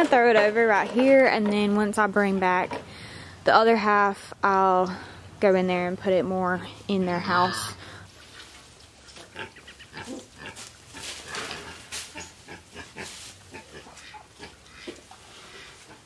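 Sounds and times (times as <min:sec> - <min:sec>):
pigs grunting: 0:09.3 - 0:16.0
hay rustling: 0:10.1 - 0:14.2.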